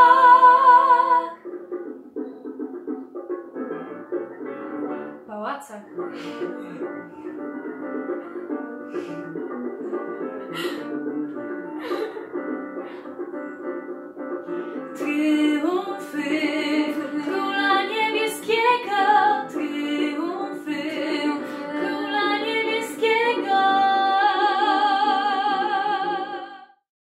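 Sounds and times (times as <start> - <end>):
woman singing: 0.0 - 1.4, 15.0 - 26.8
instrumental backing: 0.0 - 26.6.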